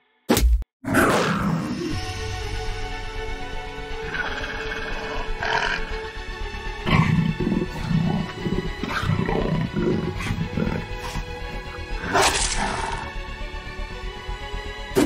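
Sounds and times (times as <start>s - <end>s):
background music: 0.9s - 15.0s
big cat growling: 3.9s - 6.2s, 6.8s - 13.2s.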